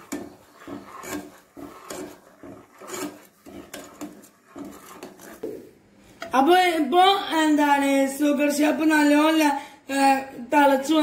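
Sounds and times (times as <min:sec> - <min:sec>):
spoon scraping a saucepan: 0:00.0 - 0:05.7.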